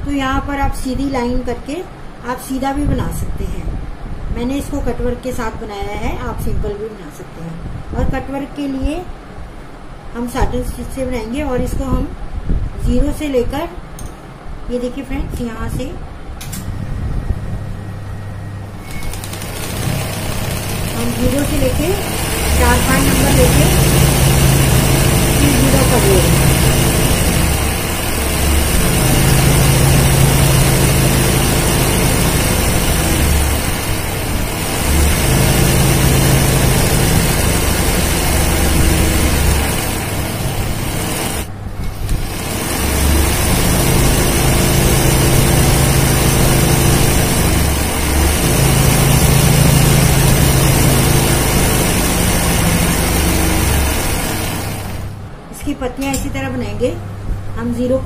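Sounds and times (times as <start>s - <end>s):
low motor hum: 16.5s - 55.4s
sewing machine stitching: 18.8s - 55.1s.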